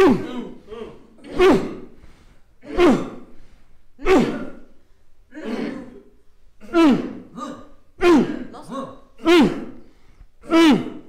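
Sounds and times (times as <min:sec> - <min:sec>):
person's forceful voiced exhalations: 0:06.6 - 0:11.0.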